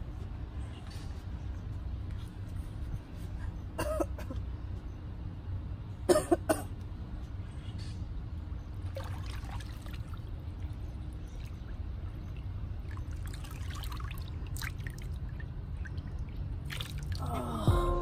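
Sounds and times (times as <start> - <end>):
water sloshing in plastic tub: 8.8 - 17.2
small splashes: 8.8 - 17.3
background music: 17.4 - 18.0.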